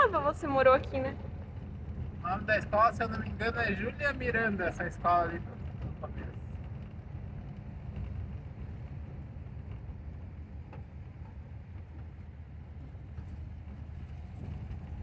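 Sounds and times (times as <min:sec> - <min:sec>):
van engine and road noise: 0:00.0 - 0:15.0.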